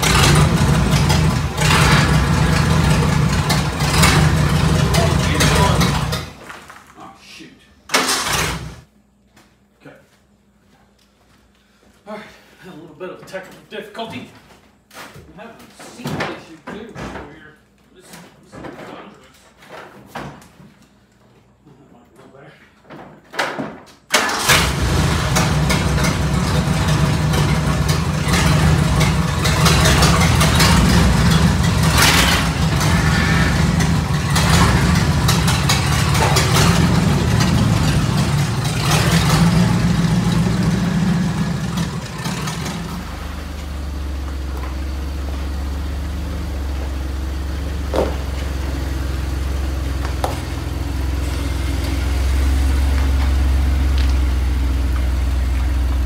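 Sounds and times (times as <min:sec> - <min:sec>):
car engine running unevenly: 0:00.0 - 0:06.3, 0:24.5 - 0:56.0
car engine low steady hum: 0:24.6 - 0:56.0.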